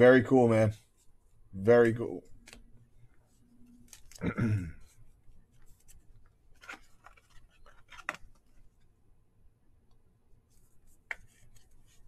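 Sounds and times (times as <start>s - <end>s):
trading cards rustling and clicking: 1.7s - 4.3s, 4.9s - 8.9s.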